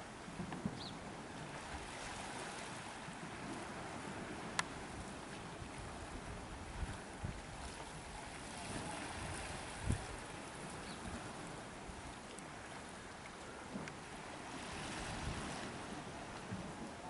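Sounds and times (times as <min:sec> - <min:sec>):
small waves washing against rocks: 0:00.2 - 0:17.0
wind thumps on microphone: 0:00.3 - 0:01.0, 0:03.1 - 0:10.3, 0:14.7 - 0:17.0.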